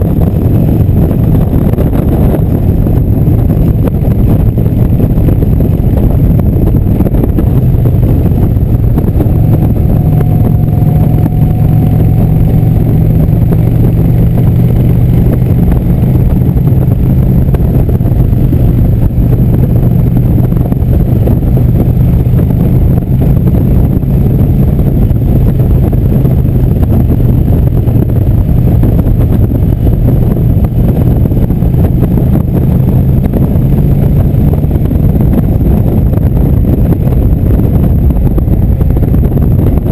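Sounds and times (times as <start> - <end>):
motorcycle engine running: 0.0 - 39.9
wind rushing over microphone: 0.0 - 39.9.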